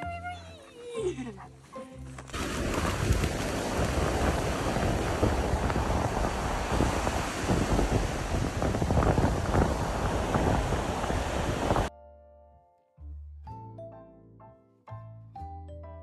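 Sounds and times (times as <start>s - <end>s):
surf washing onto beach: 2.3s - 11.9s
wind buffeting microphone: 2.4s - 11.9s.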